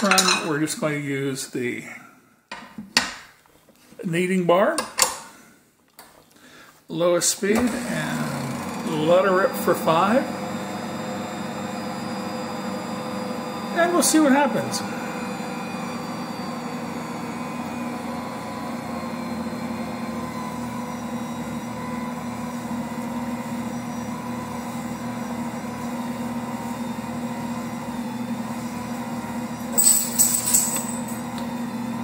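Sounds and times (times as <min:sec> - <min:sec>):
stand mixer kneading dough: 0:07.4 - 0:29.8, 0:31.0 - 0:32.0.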